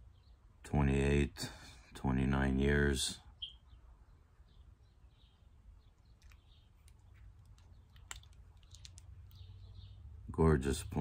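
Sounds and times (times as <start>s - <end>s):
faint high chirps: 3.3s - 8.0s.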